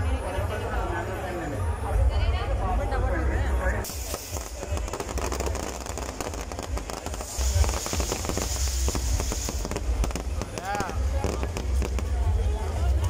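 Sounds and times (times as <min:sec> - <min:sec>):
firecrackers popping: 0:03.8 - 0:13.0
steady hiss: 0:03.8 - 0:13.0.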